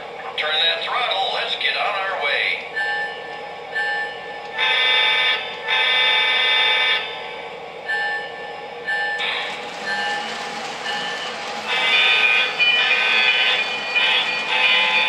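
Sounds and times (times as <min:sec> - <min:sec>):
diesel engine running: 0:08.8 - 0:15.0.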